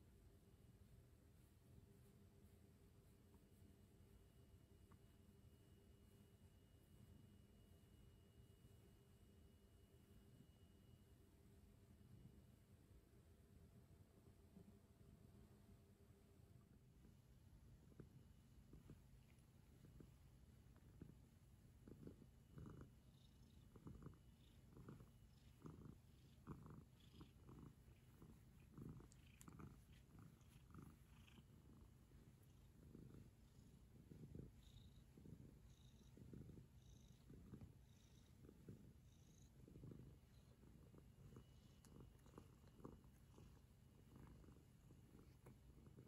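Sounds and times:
cat purring: 16.5s - 46.0s.

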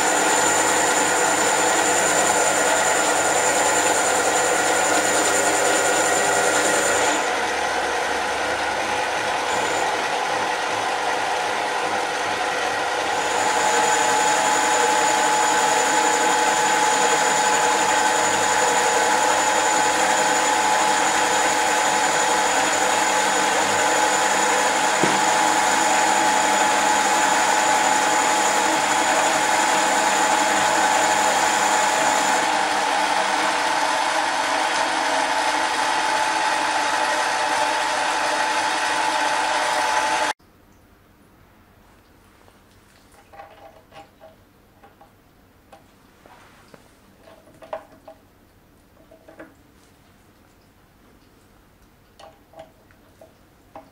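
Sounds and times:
lathe motor whining: 0.0s - 40.3s.

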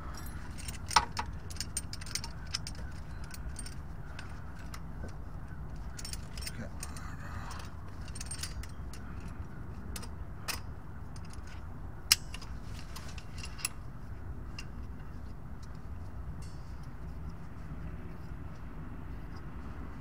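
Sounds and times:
metal clicks and clinks: 0.0s - 13.8s, 16.4s - 17.1s
low background rumble: 0.0s - 20.0s.

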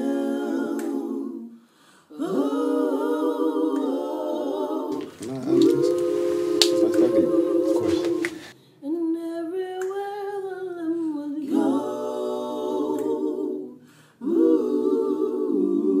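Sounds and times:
voices humming in chords: 5.1s - 8.5s.

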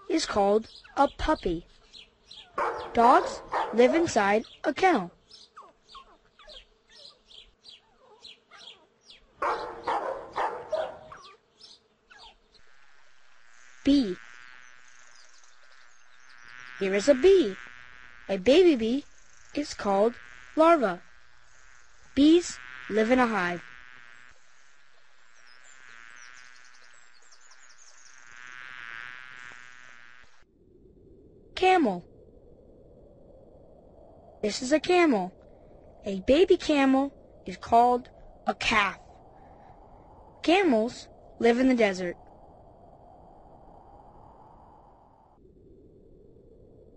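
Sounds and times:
honeybee buzzing: 0.0s - 30.4s
dog barking: 2.5s - 4.1s, 7.9s - 11.4s.

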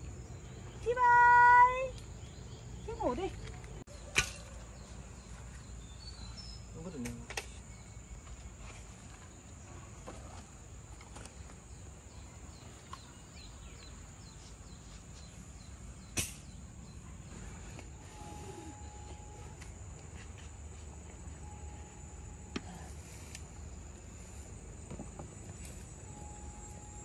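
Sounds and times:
insect drone: 4.8s - 27.0s
sharp click: 16.2s - 16.5s.

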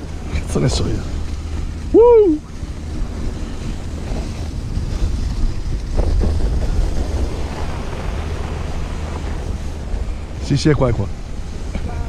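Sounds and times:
wind buffeting microphone: 0.0s - 12.0s
sled sliding over snow: 2.8s - 10.9s.

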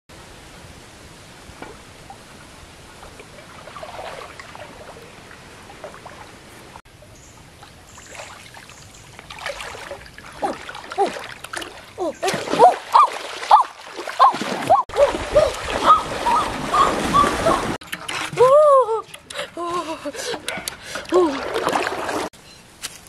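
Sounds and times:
river water trickling: 1.3s - 22.4s
person wading through water: 2.9s - 6.8s, 7.6s - 18.5s, 19.4s - 22.3s.

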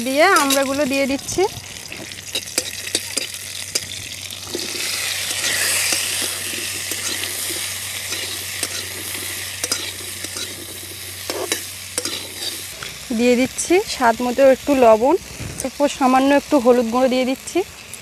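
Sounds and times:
oil sizzling: 0.0s - 18.0s
metal spatula scraping a pan: 0.2s - 0.9s, 1.8s - 13.0s.

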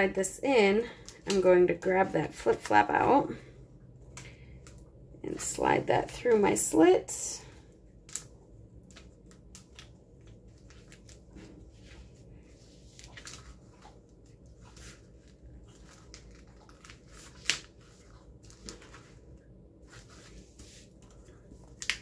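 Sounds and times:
plastic and paper rustling: 8.8s - 22.0s.

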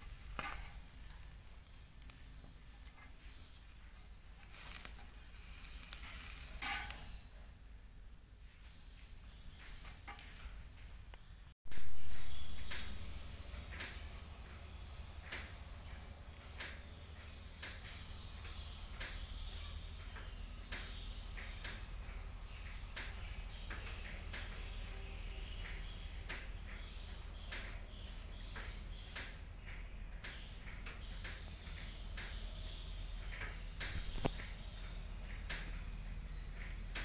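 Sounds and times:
high insect buzz: 4.4s - 7.2s.

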